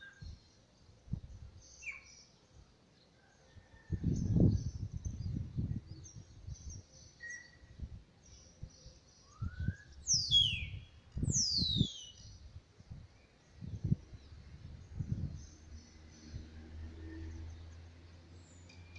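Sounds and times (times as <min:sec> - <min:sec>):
descending bird whistles: 0:09.2 - 0:12.2.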